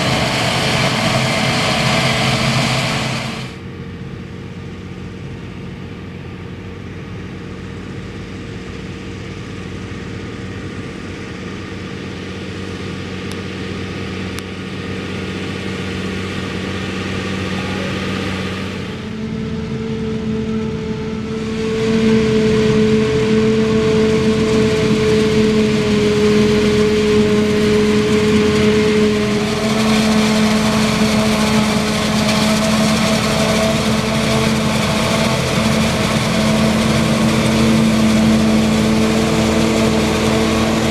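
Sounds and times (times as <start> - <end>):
diesel engines humming: 0.0 - 40.9
harvester chopping high hum: 12.6 - 40.9.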